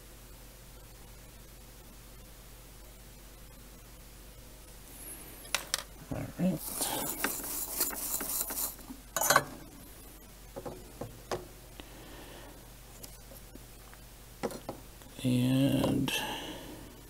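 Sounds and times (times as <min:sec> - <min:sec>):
tools rustling on workbench: 0:06.6 - 0:09.5.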